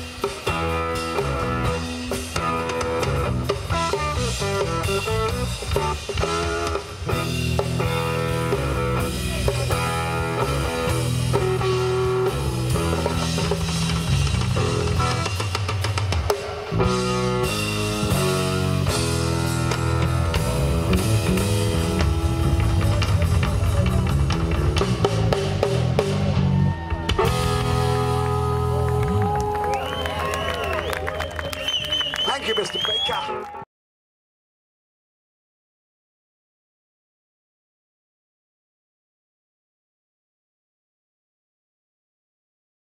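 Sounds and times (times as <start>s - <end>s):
drum kit with cymbals: 0.0s - 28.7s
electric bass: 0.0s - 31.0s
electric guitar: 0.0s - 31.6s.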